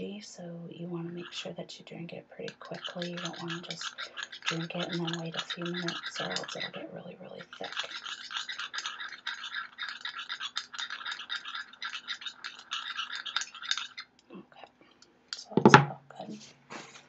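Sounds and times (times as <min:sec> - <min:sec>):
spoon scraping in a cup: 0:01.1 - 0:01.5, 0:02.4 - 0:14.1.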